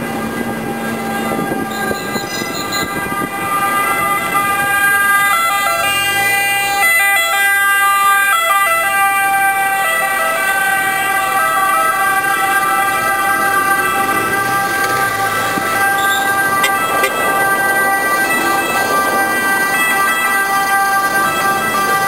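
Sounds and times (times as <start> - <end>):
ambulance siren: 0.0 - 22.0
city traffic: 0.0 - 22.0.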